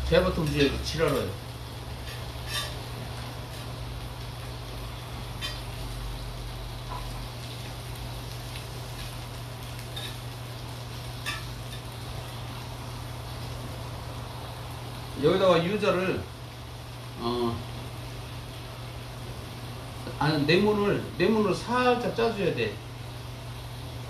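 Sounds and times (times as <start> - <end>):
meat sizzling on griddle: 0.0 - 24.0
metal utensils clicking on pan: 0.3 - 1.3, 2.0 - 2.8, 5.4 - 5.7, 11.2 - 11.9.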